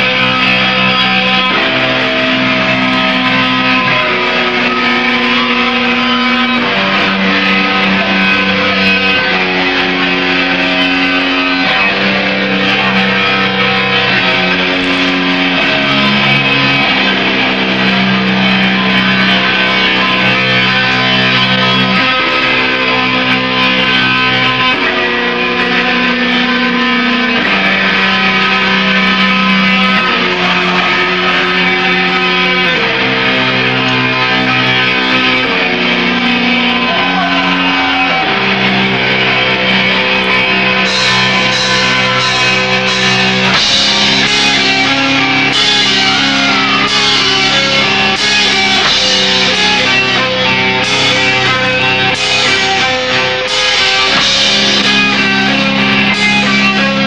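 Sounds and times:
distorted electric guitars and bass: 0.0 - 57.0
drums and cymbals: 40.8 - 57.0.

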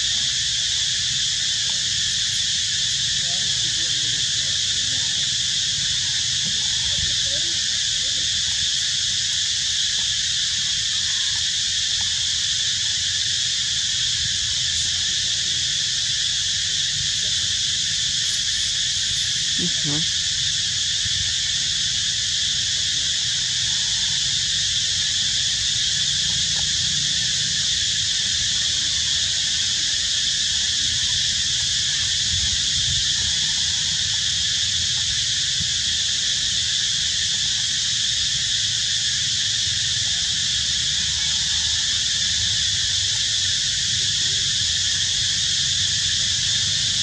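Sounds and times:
high-pitched insect chorus: 0.0 - 47.0.

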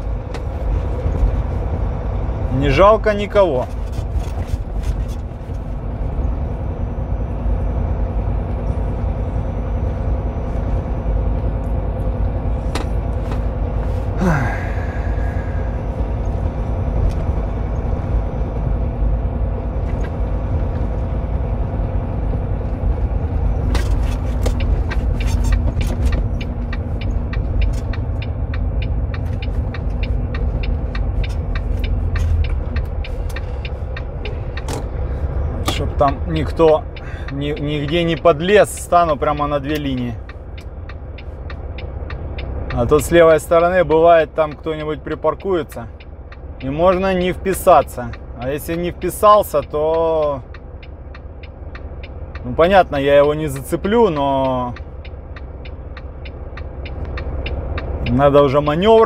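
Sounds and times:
road rumble: 0.0 - 59.0
truck diesel engine running: 0.0 - 59.0
sharp clicks: 53.1 - 58.8.

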